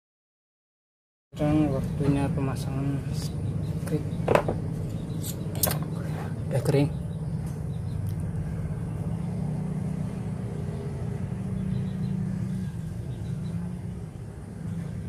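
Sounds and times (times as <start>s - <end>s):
low engine rumble: 1.4s - 15.0s.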